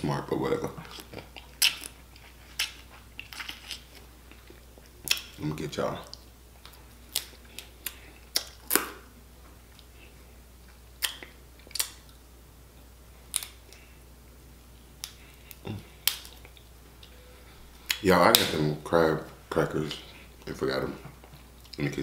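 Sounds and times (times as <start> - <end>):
crab shells cracking: 7.1 - 9.0, 15.0 - 16.5.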